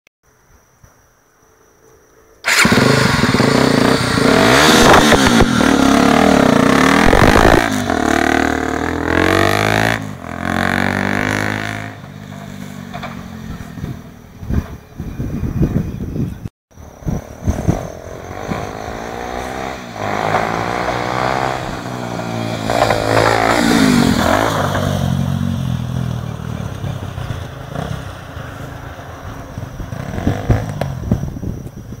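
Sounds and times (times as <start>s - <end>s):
motorcycle engine revving: 2.4s - 16.0s, 16.8s - 31.8s
choppy thumps: 6.8s - 7.7s.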